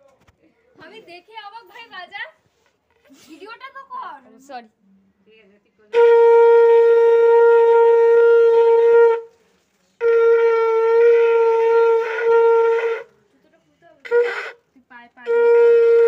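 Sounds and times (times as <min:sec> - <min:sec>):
conch shell blasts: 0:05.9 - 0:09.4, 0:10.0 - 0:13.2, 0:14.0 - 0:14.6, 0:15.2 - 0:16.0.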